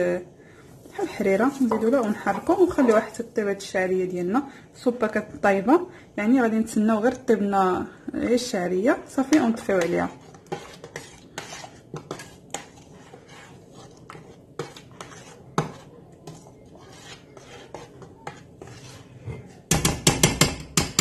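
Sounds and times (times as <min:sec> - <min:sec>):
metal spoon stirring in pot: 0:00.9 - 0:03.7, 0:08.6 - 0:21.0.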